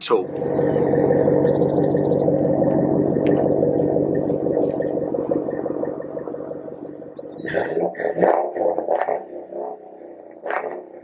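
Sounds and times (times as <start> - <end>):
truck engine idling: 0.0 - 7.5.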